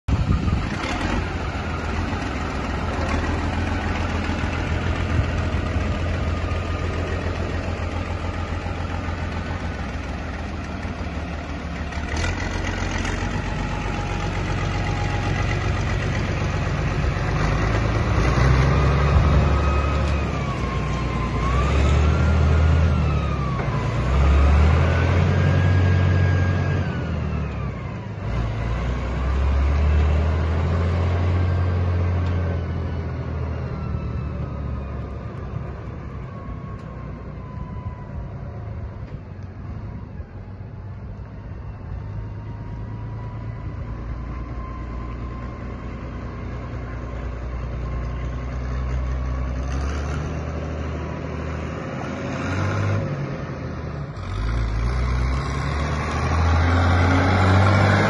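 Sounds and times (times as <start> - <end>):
tractor diesel engine running: 0.1 - 58.0.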